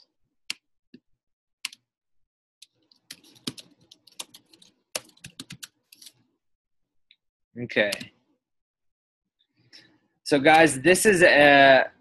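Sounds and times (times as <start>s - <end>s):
typing on computer keyboard: 2.6s - 6.2s.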